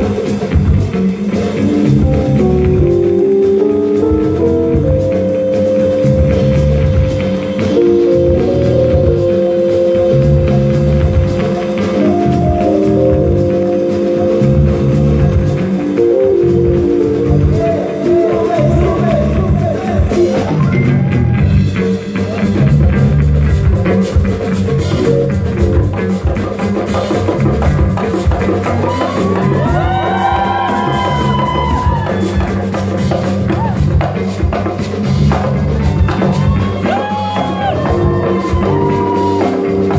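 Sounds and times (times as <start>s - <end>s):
keyboard notes: 0.0s - 28.3s, 35.9s - 39.9s
drum kit and bass groove: 0.0s - 39.9s
electric guitar notes: 1.7s - 21.6s
person singing: 17.2s - 20.8s.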